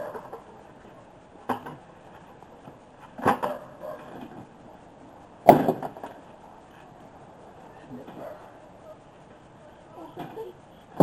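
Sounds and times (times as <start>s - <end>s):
sharp knocks: 5.5s - 6.1s.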